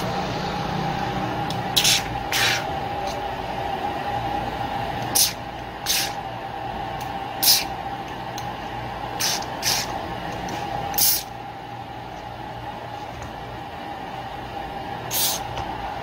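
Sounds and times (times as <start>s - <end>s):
aerosol spray hissing bursts: 5.1s - 6.2s, 7.4s - 7.7s, 9.2s - 9.9s, 11.0s - 11.3s, 15.1s - 15.5s.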